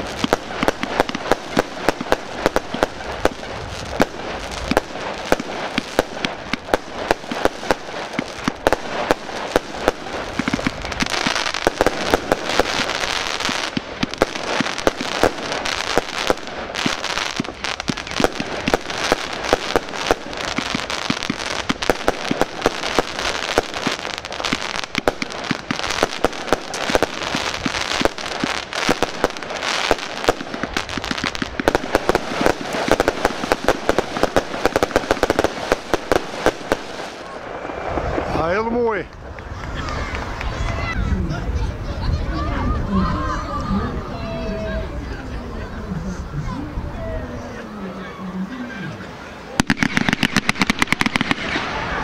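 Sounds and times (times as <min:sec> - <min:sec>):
fireworks bangs: 0:00.0 - 0:42.5, 0:48.6 - 0:52.0.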